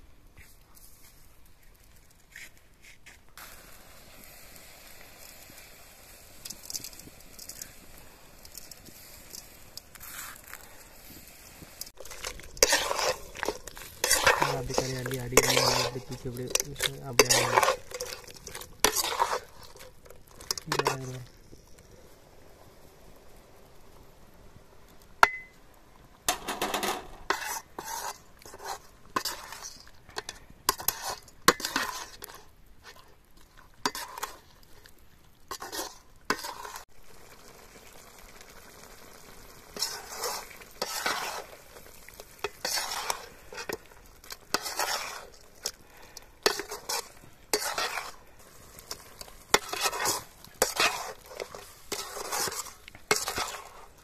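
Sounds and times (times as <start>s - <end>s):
ladle scraping metal pan: 11.9s - 21.3s, 26.3s - 33.1s, 33.8s - 34.5s, 35.5s - 36.8s, 39.8s - 54.0s.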